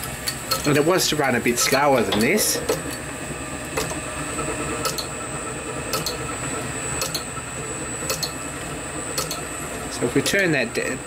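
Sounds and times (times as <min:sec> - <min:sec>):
lathe humming: 0:00.0 - 0:11.0
sharp mechanical tick: 0:00.2 - 0:00.7, 0:04.8 - 0:05.1, 0:05.9 - 0:06.2, 0:07.0 - 0:07.3, 0:08.0 - 0:08.4, 0:09.1 - 0:09.4.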